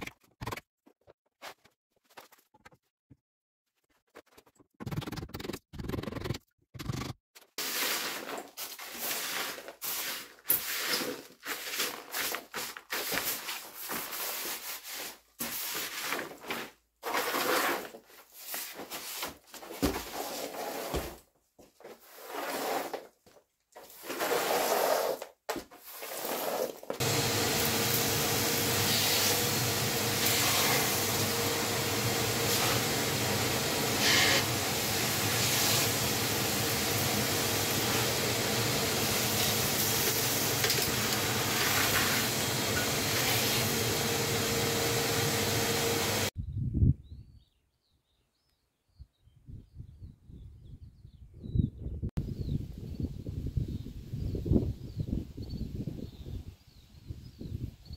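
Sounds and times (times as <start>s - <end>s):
rubble swept across floor: 7.5s - 21.2s, 21.8s - 23.2s, 23.8s - 43.8s
shop vacuum running: 27.0s - 46.3s.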